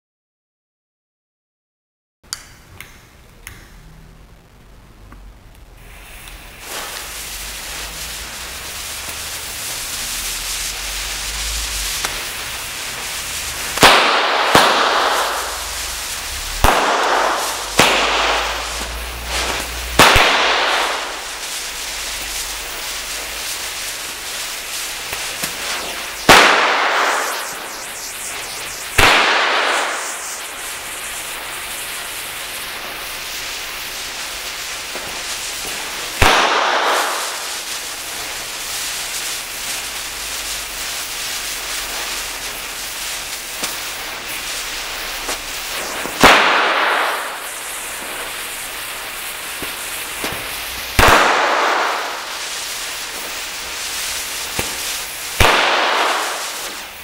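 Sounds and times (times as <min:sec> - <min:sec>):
fuse hissing: 0:05.8 - 0:57.0
firecracker bangs: 0:05.9 - 0:57.0.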